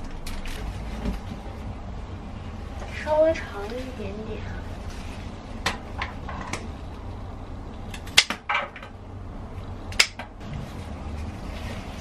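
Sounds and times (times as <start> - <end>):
flower stems rustling: 2.8 - 5.6, 10.4 - 12.0.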